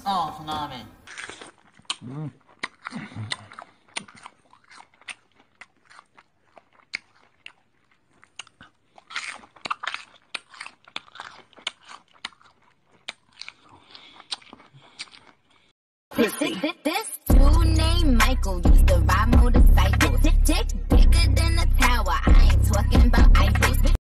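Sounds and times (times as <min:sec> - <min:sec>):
sloth chewing food: 0:01.0 - 0:15.8.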